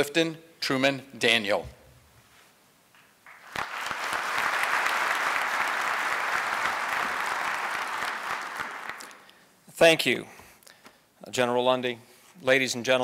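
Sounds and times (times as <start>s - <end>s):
audience applauding: 3.2s - 9.3s.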